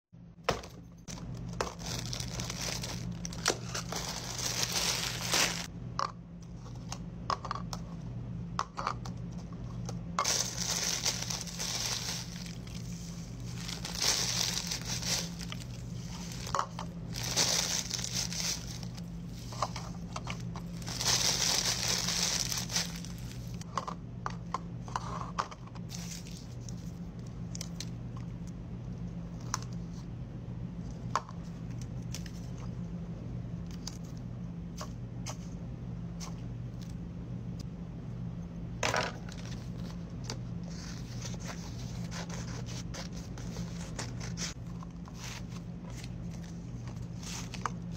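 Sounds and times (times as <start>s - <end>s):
low steady hum: 0.2s - 47.9s
plastic bags crinkling: 1.1s - 5.7s, 10.2s - 19.8s, 20.4s - 23.6s.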